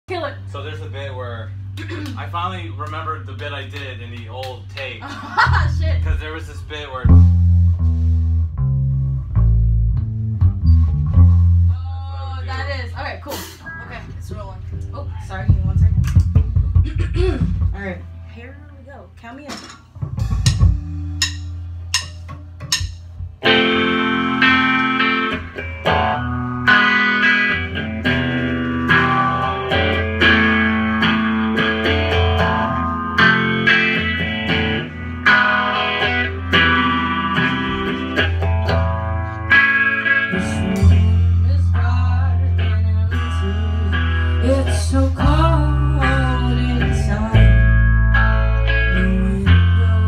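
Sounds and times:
rock band playing: 0.1 - 18.3, 19.4 - 50.0
person singing: 40.3 - 47.7, 48.9 - 50.0.

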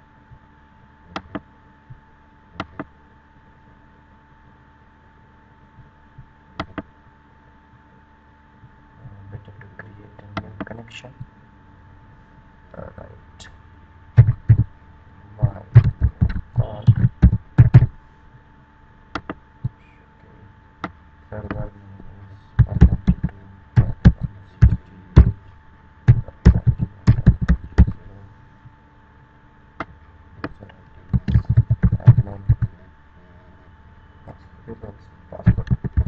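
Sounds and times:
keyboard keys clacking: 14.2 - 14.7, 15.4 - 17.9, 22.6 - 25.4, 26.1 - 28.1, 30.4 - 32.7, 35.4 - 36.0.

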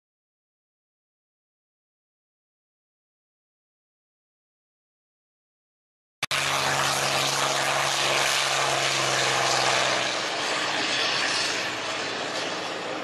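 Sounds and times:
propeller aircraft engine at full power: 6.2 - 13.0.

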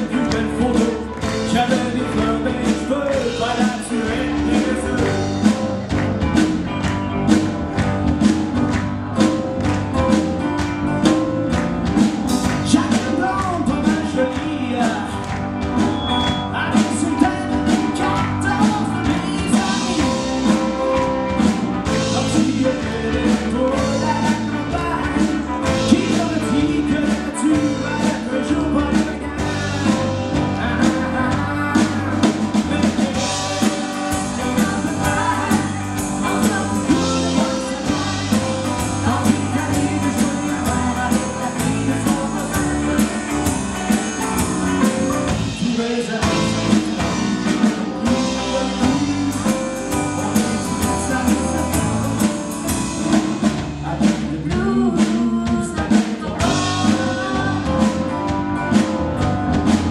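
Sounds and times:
drum kit: 0.0 - 59.9
electric bass: 0.0 - 59.9
electric guitar: 0.0 - 59.9
woman singing lead: 21.9 - 53.2, 53.8 - 59.9.

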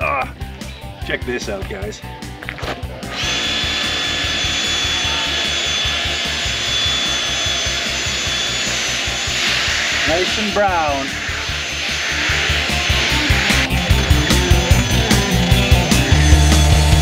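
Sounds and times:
pressure washer spraying: 3.1 - 15.2
pressure washer motor whine: 3.1 - 17.0.

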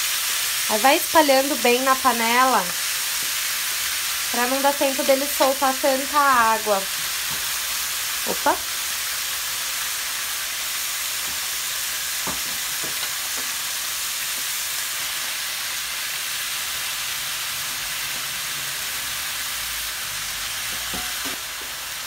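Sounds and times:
chicken sizzling in oil: 0.0 - 22.0.

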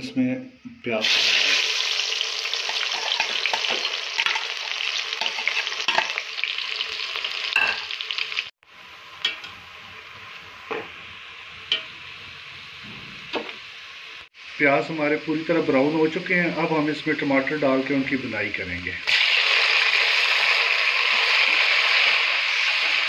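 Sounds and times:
onions sizzling in hot oil: 1.0 - 23.0
metal spatula scraping a pot: 2.7 - 6.1.

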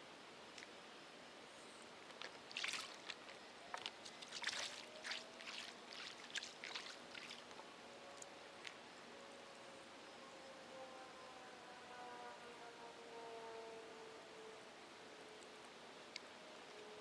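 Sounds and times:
water splashing and trickling: 2.0 - 8.7.

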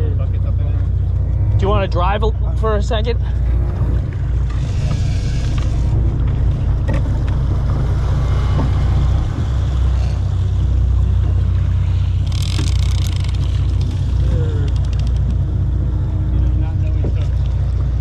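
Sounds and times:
boat engine rumbling: 0.0 - 18.0
water churning against hull: 0.0 - 18.0.

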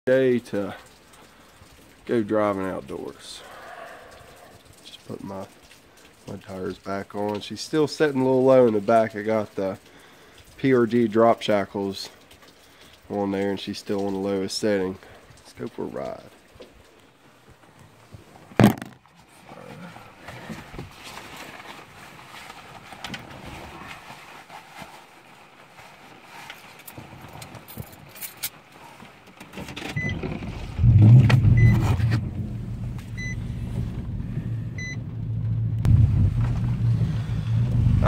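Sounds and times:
keys and handling noises: 26.4 - 29.6
car engine starting and idling: 29.8 - 38.0.

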